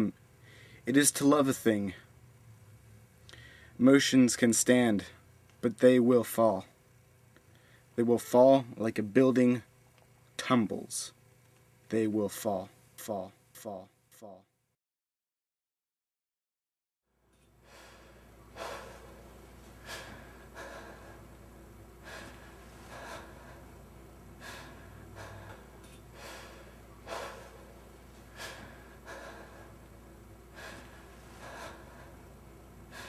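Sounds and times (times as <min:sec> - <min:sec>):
low steady hum: 0:00.0 - 0:14.8, 0:17.1 - 0:33.0
person breathing heavily: 0:00.4 - 0:00.9, 0:03.2 - 0:03.8, 0:17.6 - 0:33.0.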